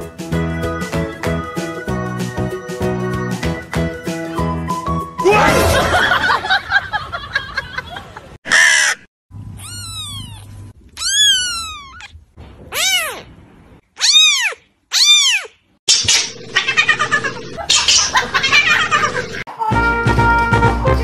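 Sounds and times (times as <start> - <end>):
kitten meowing: 9.6 - 13.3, 14.0 - 15.6.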